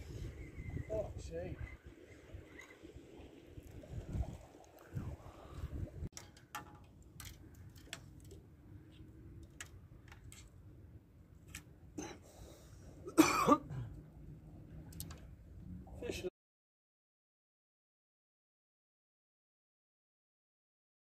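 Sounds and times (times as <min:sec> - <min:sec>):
person coughing: 0:13.1 - 0:13.9.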